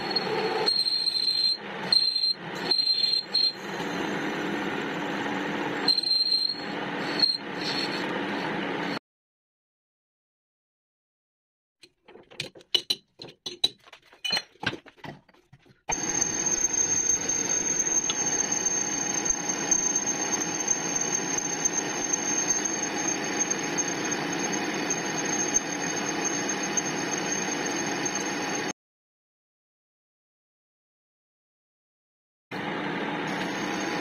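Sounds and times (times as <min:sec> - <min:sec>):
high-pitched squeal: 0:00.0 - 0:09.0, 0:15.9 - 0:28.7
metal lathe machining: 0:00.0 - 0:09.0, 0:15.9 - 0:28.7, 0:32.6 - 0:34.0.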